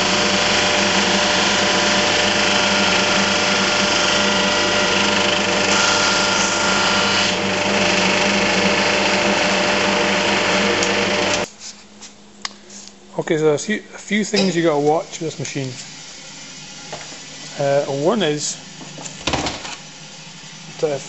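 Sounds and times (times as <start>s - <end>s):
drum sander motor hum: 0.0s - 11.5s.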